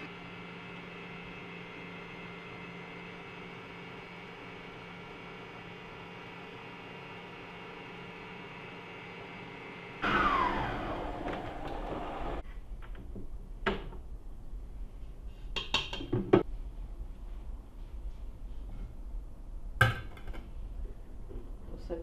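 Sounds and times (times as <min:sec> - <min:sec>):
stand mixer motor whining: 0:00.0 - 0:12.4.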